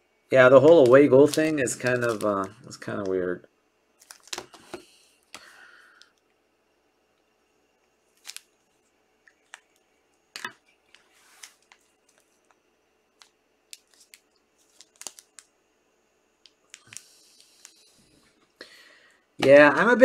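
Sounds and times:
foil packs crinkling: 0.5 - 3.2, 4.0 - 4.8, 8.1 - 8.5, 13.2 - 15.5.

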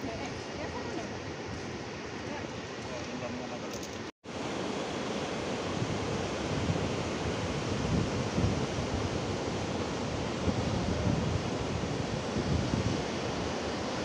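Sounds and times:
wind on microphone: 4.6 - 14.0.

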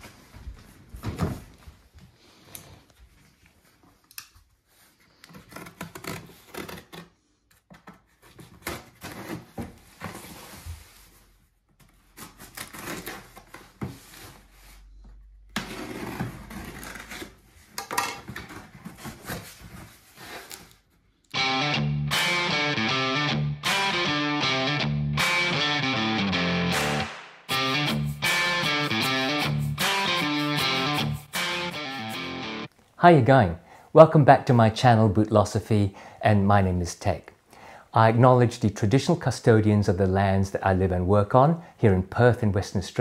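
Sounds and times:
knife slitting packing tape: 5.3 - 7.1, 12.2 - 13.5
cardboard rustling: 15.6 - 21.0
guitar music: 21.3 - 32.7.

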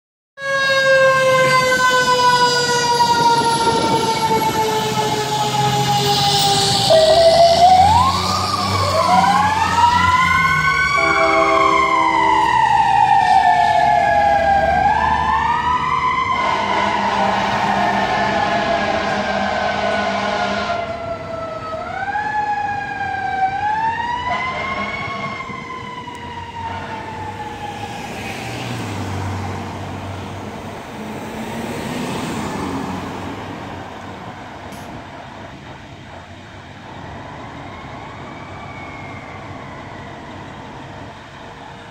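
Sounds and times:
fire engine siren wailing: 0.4 - 41.9
air horn blast: 10.9 - 12.5, 16.4 - 20.9, 24.3 - 25.5.

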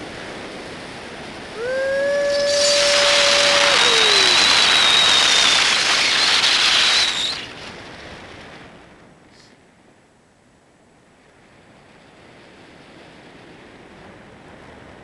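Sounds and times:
wind buffeting microphone: 0.0 - 9.8
thin high whistle: 1.7 - 7.5.

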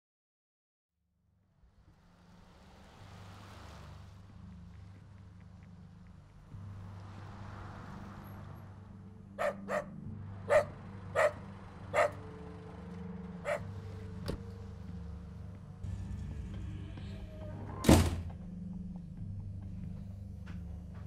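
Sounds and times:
dog barking: 9.4 - 12.3, 13.4 - 13.7.

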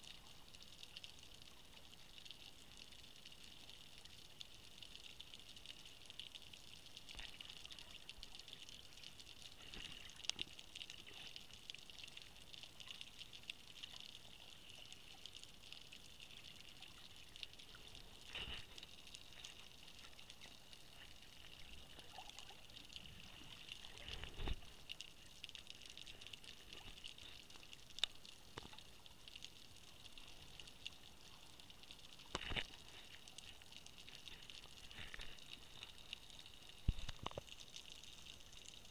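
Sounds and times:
faint underwater hiss: 0.0 - 38.9
underwater knocks and clicks: 32.3 - 33.0, 36.8 - 37.6.

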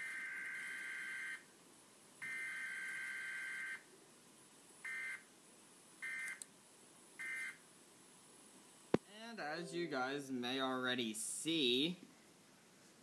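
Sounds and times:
faint digital alert tone bursts: 9.3 - 10.6.

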